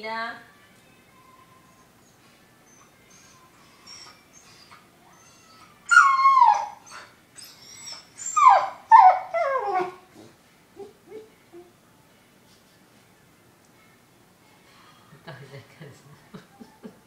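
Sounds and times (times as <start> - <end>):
dog whining: 1.6 - 11.8.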